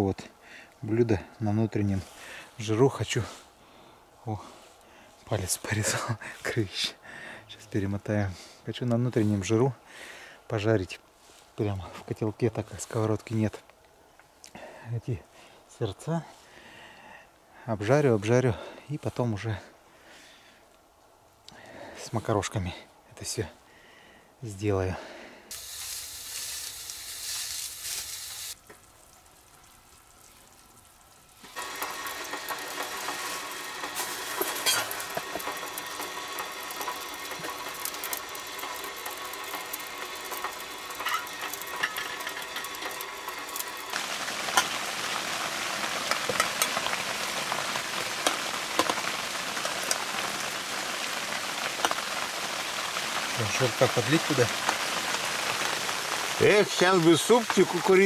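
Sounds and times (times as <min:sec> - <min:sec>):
meat frying in fat: 0:25.5 - 0:58.0.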